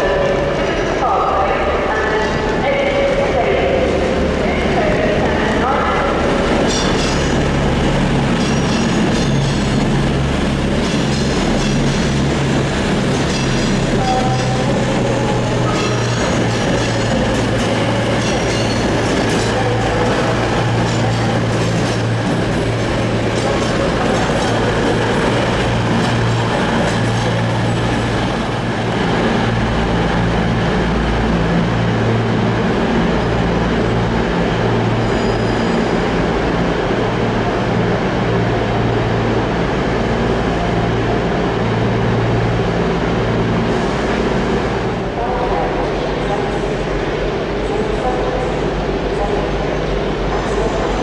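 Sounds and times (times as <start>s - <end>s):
diesel train engines humming: 0.0s - 51.0s.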